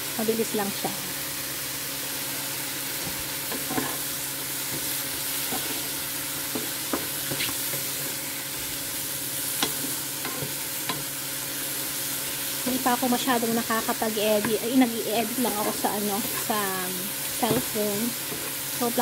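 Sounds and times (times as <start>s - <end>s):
mushrooms sizzling in butter: 0.0s - 19.0s
wooden spatula scraping pan: 6.6s - 8.2s.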